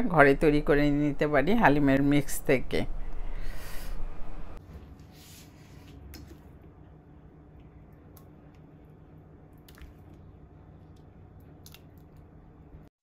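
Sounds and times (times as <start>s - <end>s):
porridge squelching plops: 9.4s - 12.4s.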